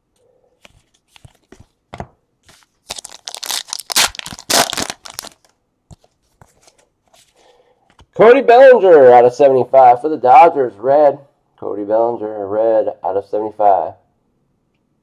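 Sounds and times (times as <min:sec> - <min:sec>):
card wrapper tearing and crinkling: 0:02.5 - 0:05.5.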